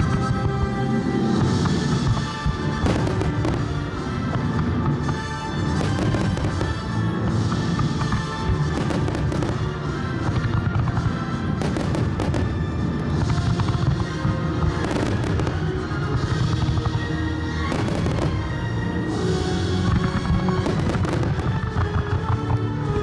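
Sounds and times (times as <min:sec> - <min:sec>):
music: 0:00.0 - 0:23.0.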